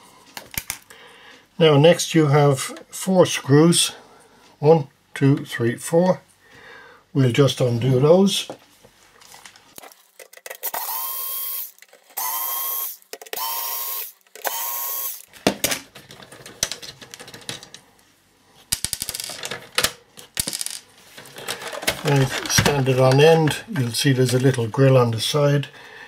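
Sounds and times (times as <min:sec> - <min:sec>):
electric screwdriver whining: 0:10.6 - 0:15.3
screws and metal casing rattling: 0:15.9 - 0:17.8, 0:18.7 - 0:24.7.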